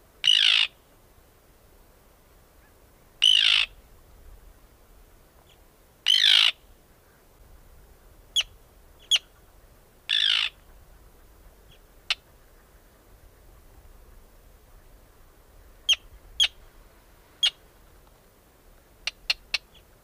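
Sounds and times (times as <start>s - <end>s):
tern calling: 0.2s - 0.8s, 2.6s - 3.8s, 5.4s - 7.2s, 8.0s - 13.7s, 15.6s - 17.7s, 18.9s - 20.0s.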